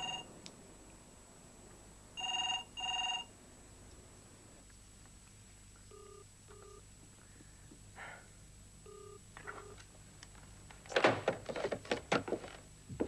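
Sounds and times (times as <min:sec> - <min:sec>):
telephone ringing tone: 0:00.0 - 0:00.3, 0:02.2 - 0:03.3, 0:05.9 - 0:06.8, 0:08.8 - 0:09.8.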